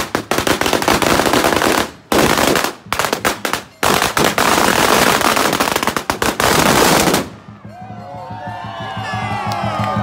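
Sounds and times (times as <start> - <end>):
firecrackers banging: 0.0 - 7.6.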